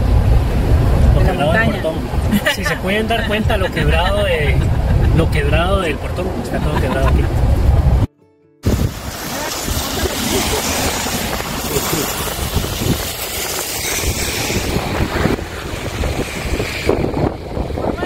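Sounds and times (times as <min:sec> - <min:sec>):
wind buffeting microphone: 0:00.0 - 0:18.0
car tyres swishing on wet road: 0:08.6 - 0:18.0
hiss of wind and rain: 0:08.6 - 0:18.0.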